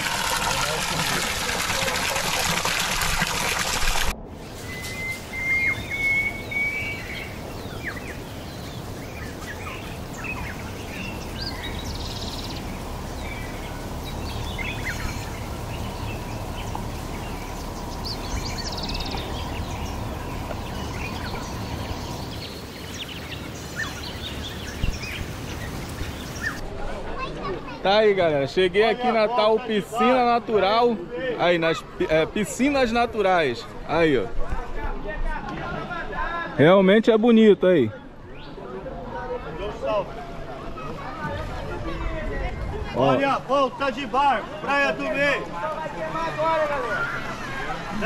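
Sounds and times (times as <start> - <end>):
steady rushing noise: 2.9 - 27.0
birds chirping: 4.4 - 26.6
rising whistled note: 4.5 - 7.2.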